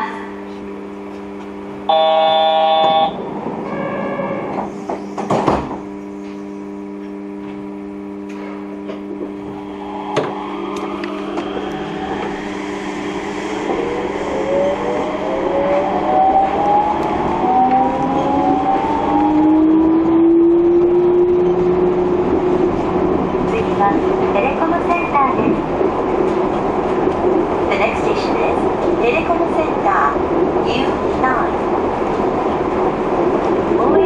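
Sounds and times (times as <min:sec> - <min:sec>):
train running noise: 0:00.0 - 0:06.4, 0:08.3 - 0:34.0
train hum: 0:00.0 - 0:34.0
train whine rising in pitch: 0:01.8 - 0:04.9, 0:09.2 - 0:23.5.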